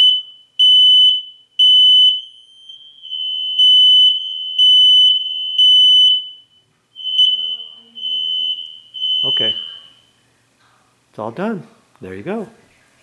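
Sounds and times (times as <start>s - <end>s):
faint beeping of another alarm: 0.0s - 10.4s
smoke alarm beeping: 0.0s - 10.4s.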